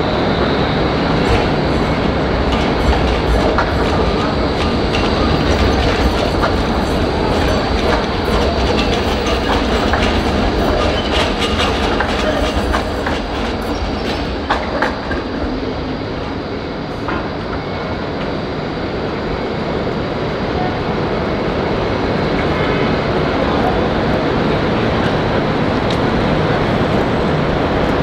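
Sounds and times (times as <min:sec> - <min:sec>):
tram wheels clattering: 0:00.0 - 0:18.4.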